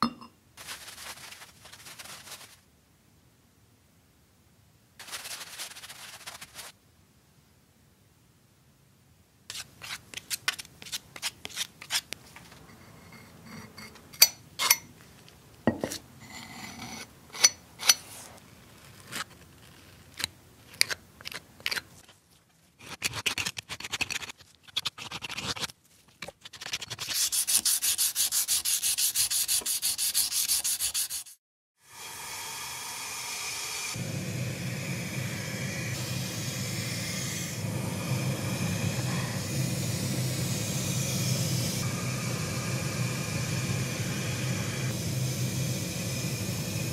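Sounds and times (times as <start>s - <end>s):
hand sanding strokes: 5.0s - 6.7s, 27.0s - 31.4s.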